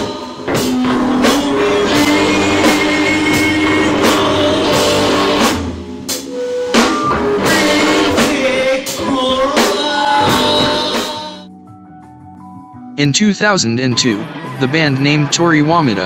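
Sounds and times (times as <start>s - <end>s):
person singing: 0.0s - 5.6s, 7.1s - 11.5s
rock band playing live: 0.0s - 11.5s.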